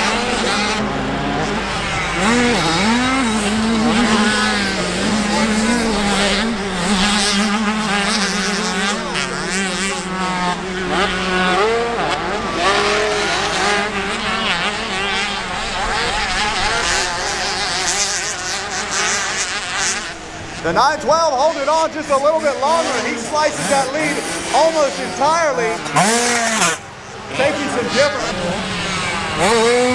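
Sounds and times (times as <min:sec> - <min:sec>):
steady low drone: 0:00.0 - 0:17.4
motocross bike engines revving: 0:00.0 - 0:29.9.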